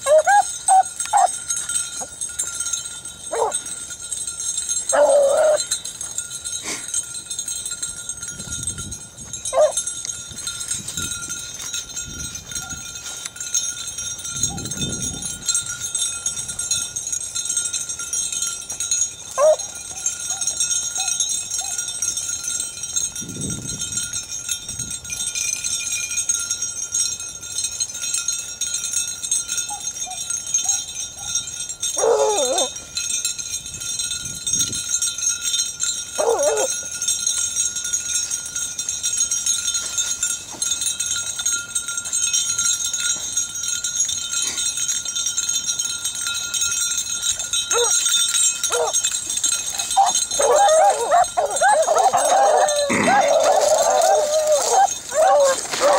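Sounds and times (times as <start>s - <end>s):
dogs barking: 0.0s - 1.4s, 3.3s - 3.7s, 4.9s - 5.7s, 9.5s - 9.8s, 19.4s - 21.9s, 32.0s - 32.7s, 36.2s - 36.8s, 47.7s - 48.0s, 48.6s - 49.0s, 49.7s - 55.9s.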